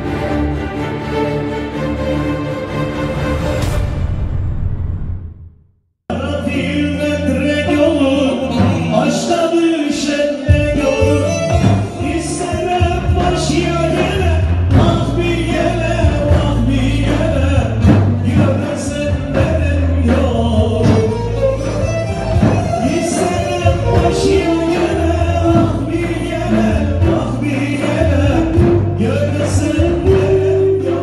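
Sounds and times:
singing: 0:06.1 - 0:31.0
steady bass line: 0:10.5 - 0:31.0.

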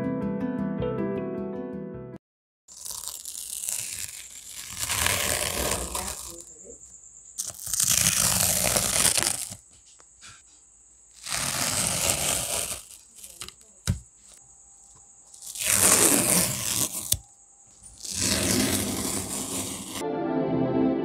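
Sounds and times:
masking tape tearing off: 0:02.7 - 0:06.5, 0:07.4 - 0:09.6, 0:11.2 - 0:14.0, 0:15.3 - 0:17.2, 0:17.8 - 0:20.0
tape crinkling: 0:02.7 - 0:06.5, 0:07.4 - 0:09.6, 0:11.2 - 0:14.4, 0:15.3 - 0:20.0.

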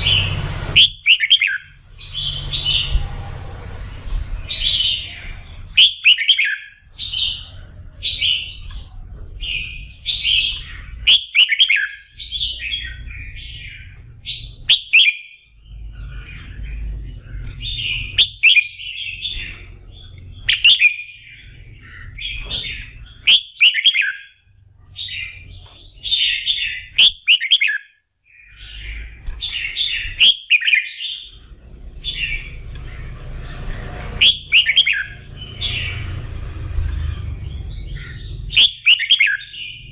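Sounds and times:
low rumble: 0:00.0 - 0:05.8, 0:15.5 - 0:18.2, 0:31.2 - 0:38.8
bird singing: 0:00.0 - 0:39.9.

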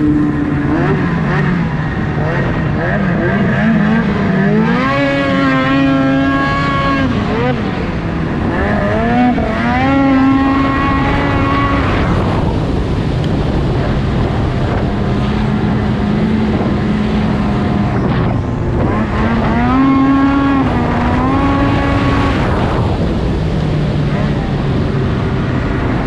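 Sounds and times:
snowmobile engine at high revs: 0:00.0 - 0:26.0.

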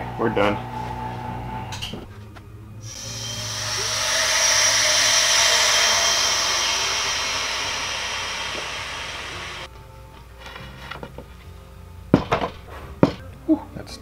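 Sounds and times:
air hissing into vacuum chamber: 0:02.8 - 0:09.7.

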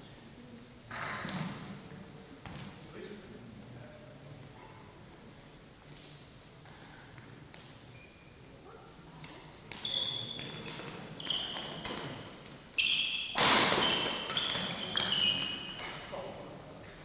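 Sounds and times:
shoes squeaking on floor: 0:07.5 - 0:08.5, 0:09.3 - 0:16.2
rackets striking shuttlecock: 0:13.2 - 0:15.1.

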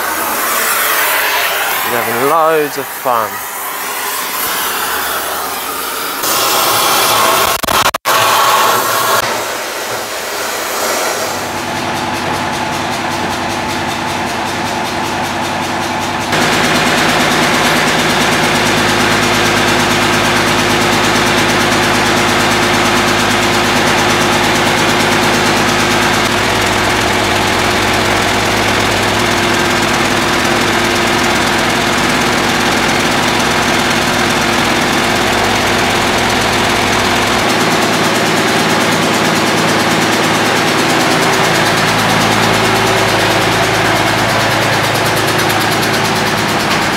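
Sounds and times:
truck engine idling: 0:00.0 - 0:07.8, 0:09.9 - 0:46.9
cutting torch hissing: 0:00.0 - 0:11.7.

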